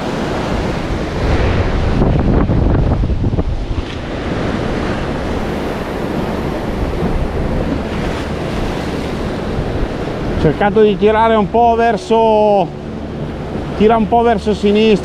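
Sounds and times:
wind on microphone: 0.0 - 10.8
sea surf washing in: 0.0 - 15.0.

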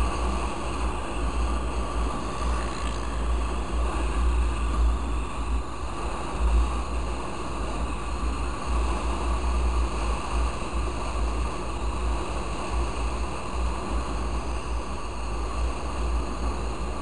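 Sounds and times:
motorcycle road noise: 0.0 - 5.6.

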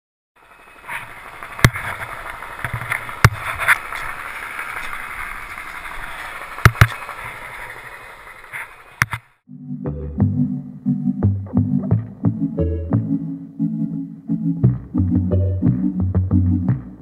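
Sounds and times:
skis hissing through snow: 0.4 - 9.0.

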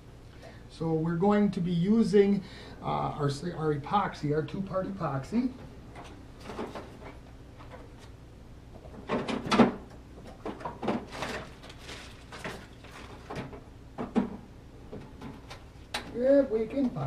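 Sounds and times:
rummaging knocks and rattles: 5.9 - 8.1, 8.8 - 15.7.

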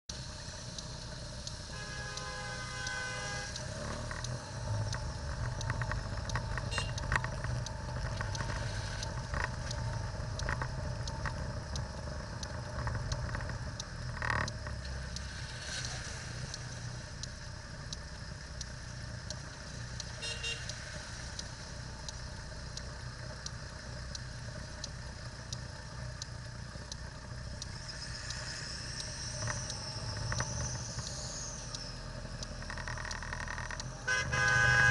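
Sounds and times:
car engine low rumble: 0.0 - 34.9
faint regular ticking: 0.1 - 34.9
rain: 0.1 - 34.9
car horn: 1.7 - 3.6, 6.7 - 7.0, 20.2 - 20.7, 34.0 - 34.9.

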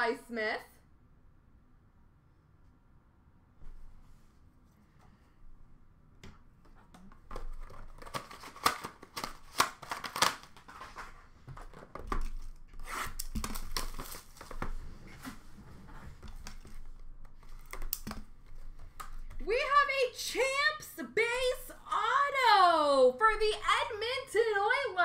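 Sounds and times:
plastic wrappers crinkling: 7.3 - 14.7
sharp snaps and clicks: 17.6 - 18.2.

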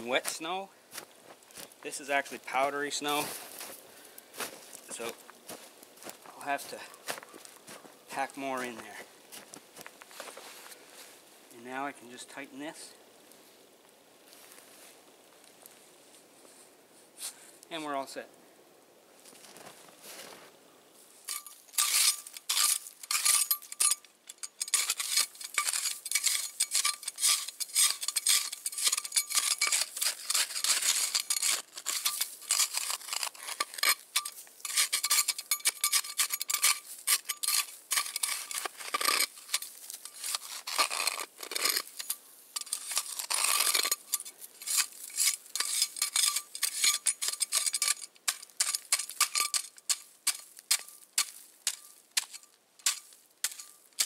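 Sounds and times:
metal tool scraping snow: 21.2 - 54.0.

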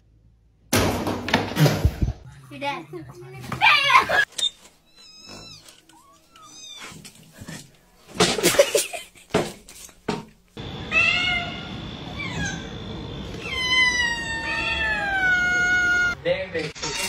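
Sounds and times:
cat meowing: 4.9 - 7.0, 10.9 - 12.7, 13.4 - 16.2.

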